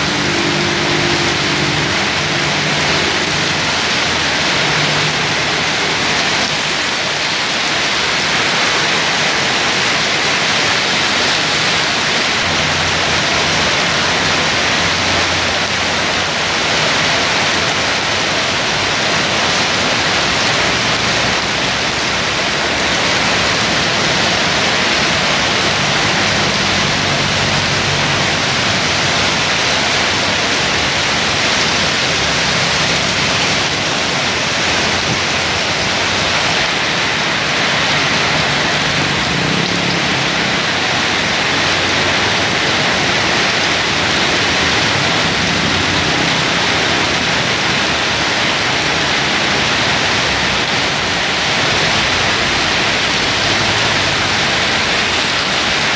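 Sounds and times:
heavy rain pouring: 0.0 - 55.9.

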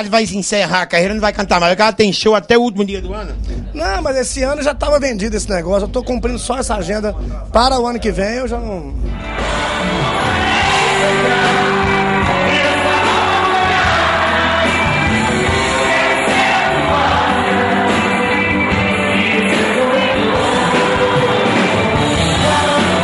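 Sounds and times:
man singing with band: 10.1 - 23.0.

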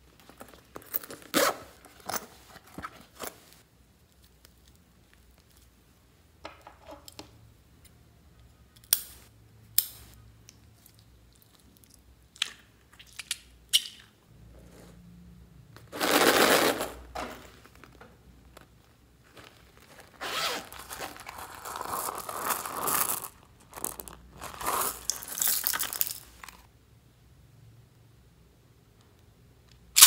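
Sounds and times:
case scraping and rustling: 15.9 - 23.1
zipper being pulled open: 16.0 - 17.0, 20.1 - 23.3.

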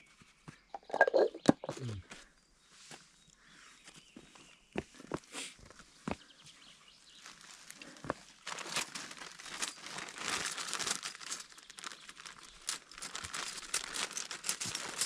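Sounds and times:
plastic bag crinkling: 7.2 - 15.0.

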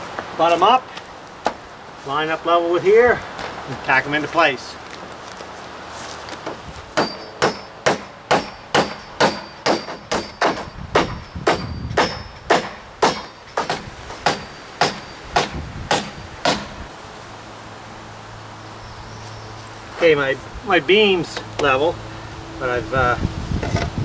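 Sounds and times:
hammer driving nails into timber: 7.0 - 16.7.

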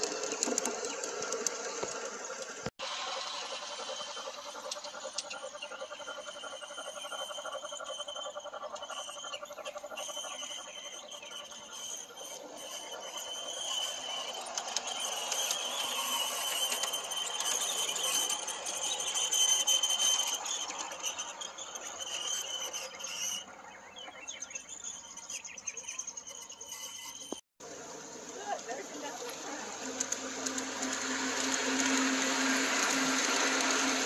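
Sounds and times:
high-pitched whine: 0.0 - 34.0
model train rolling past: 0.0 - 34.0.

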